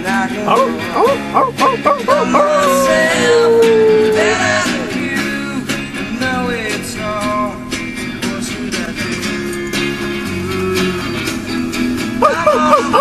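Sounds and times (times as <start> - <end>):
person singing: 0.0 - 9.5, 12.2 - 13.0
country song with guitar: 0.0 - 13.0.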